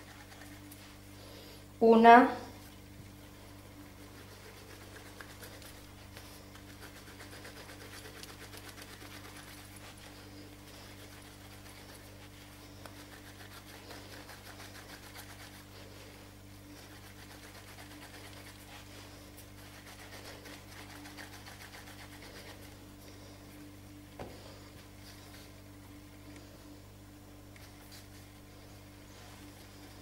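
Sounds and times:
low electrical hum: 0.0s - 30.0s
palms rubbing dough on stone: 3.9s - 23.3s.

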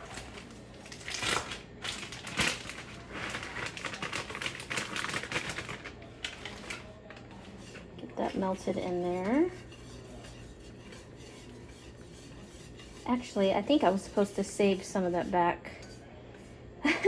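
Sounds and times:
plastic bag crinkling: 0.0s - 7.3s.

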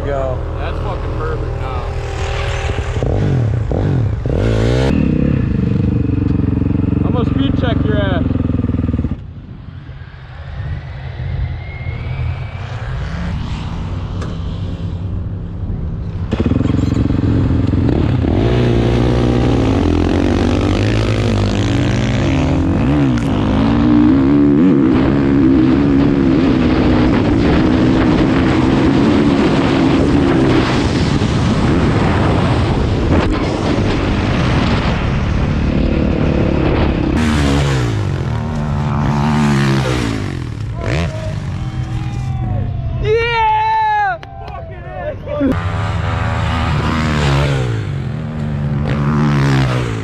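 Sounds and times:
dirt bike engine revving: 0.0s - 9.2s, 16.2s - 42.3s, 45.4s - 50.0s.

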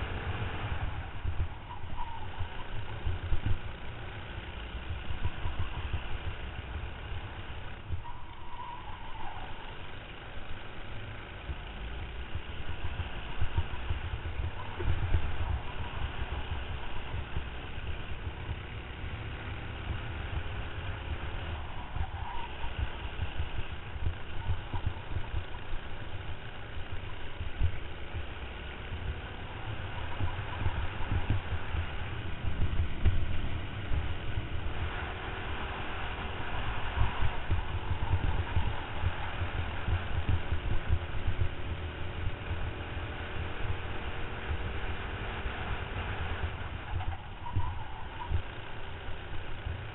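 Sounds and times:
kart engine: 0.0s - 49.9s
wind buffeting microphone: 36.2s - 42.8s.

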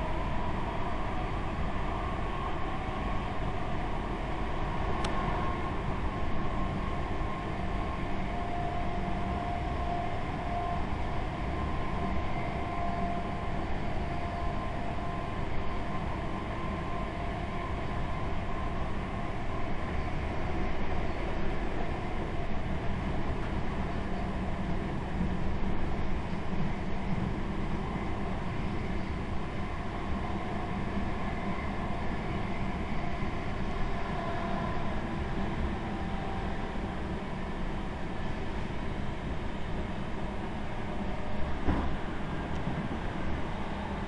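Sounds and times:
train wheels rumbling on track: 0.0s - 44.0s.

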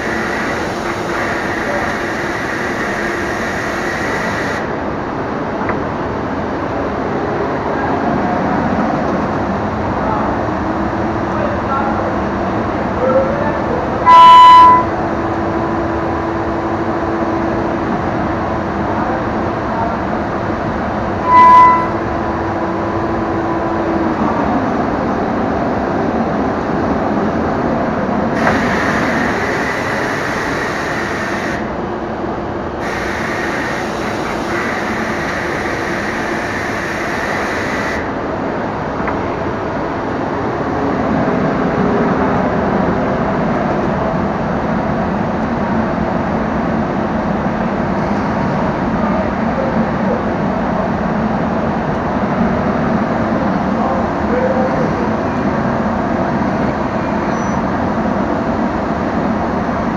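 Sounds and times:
cnc router machining wood: 0.0s - 4.7s
short loud tone: 14.0s - 15.0s, 21.2s - 22.1s.

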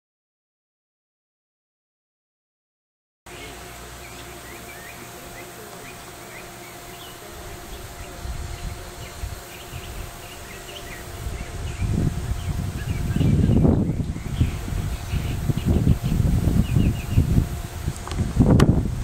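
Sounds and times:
birds chirping: 3.3s - 18.3s
faint steady hum: 3.3s - 19.0s
low rumbling on microphone: 6.8s - 19.0s.

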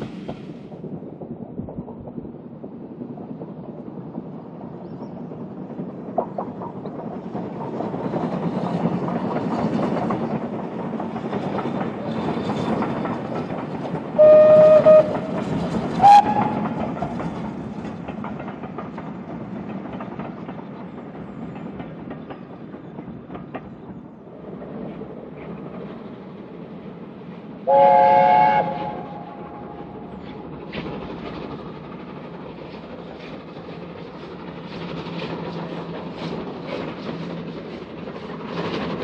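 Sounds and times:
steam train passing: 0.0s - 39.0s
train whistle blasts: 14.2s - 15.3s, 16.0s - 16.6s, 27.7s - 29.3s.

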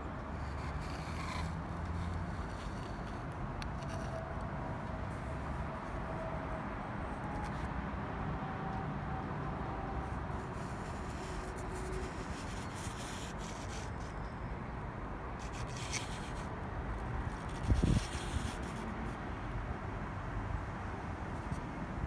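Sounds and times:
handling noise rubbing and scraping: 0.3s - 7.7s, 10.0s - 14.2s, 15.4s - 19.2s.

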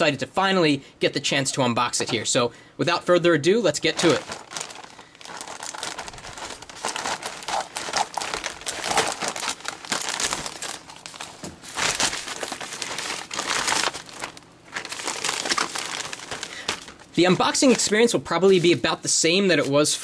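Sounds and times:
plastic mailer bag crinkling: 3.7s - 18.8s.

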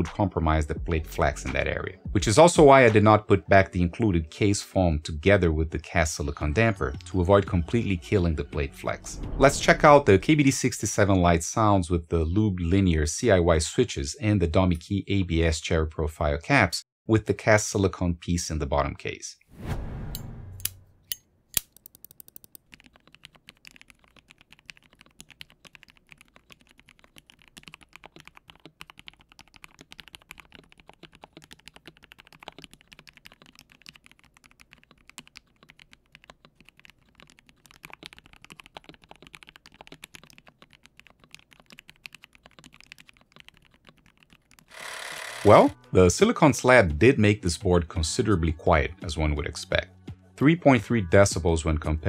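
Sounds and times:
mechanical keyboard typing: 21.6s - 45.7s.

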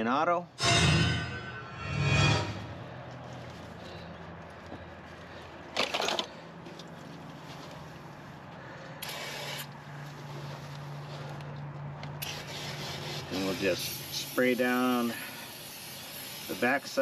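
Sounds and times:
aerosol spray hissing: 12.3s - 17.0s.

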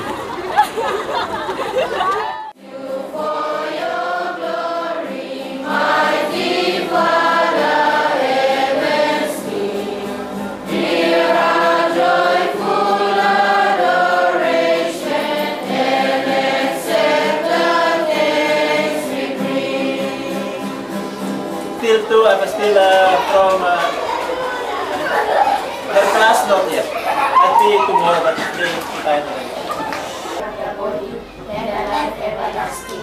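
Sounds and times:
choir singing: 2.5s - 23.3s.

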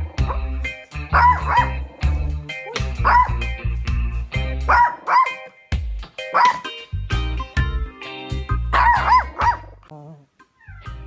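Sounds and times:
background music with bass: 0.0s - 11.0s
small dog barking: 1.2s - 1.8s, 2.7s - 3.4s, 4.7s - 5.4s, 6.3s - 6.7s, 8.8s - 9.8s.

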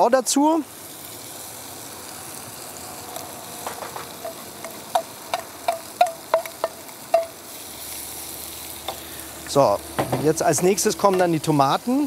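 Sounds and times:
onions sizzling in a pan: 0.0s - 12.0s
spoon knocking against a pan: 3.7s - 7.4s.

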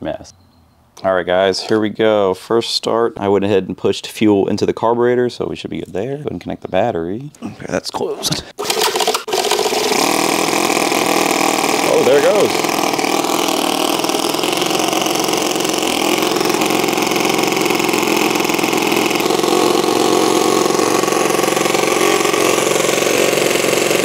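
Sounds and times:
model engine running: 8.5s - 24.0s.

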